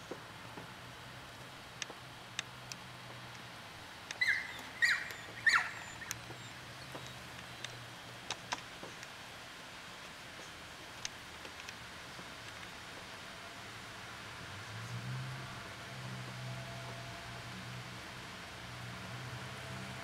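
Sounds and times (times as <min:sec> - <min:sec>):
dog whining yelps: 0:04.2 - 0:06.6.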